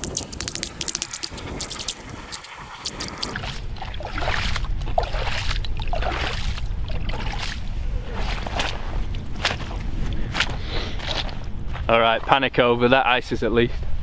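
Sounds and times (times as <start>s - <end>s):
slushy water splashing: 0.0s - 9.8s
steady low rumble: 0.0s - 14.0s.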